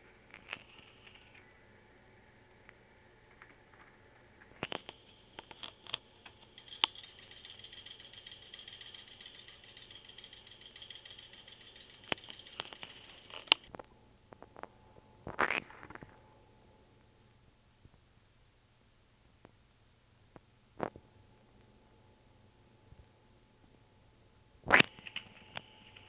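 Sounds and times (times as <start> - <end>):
sharp clicks: 4.6 - 13.8
rat drinking from water bottle: 4.7 - 13.7.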